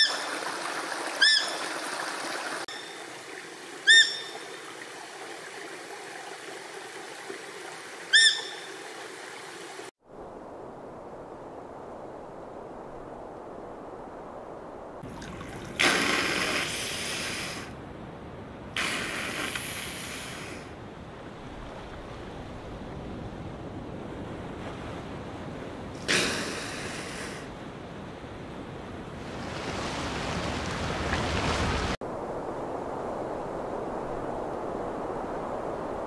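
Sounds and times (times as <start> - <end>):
sea wash: 0.0 - 17.8, 18.5 - 36.0
whales exhaling: 15.6 - 17.7.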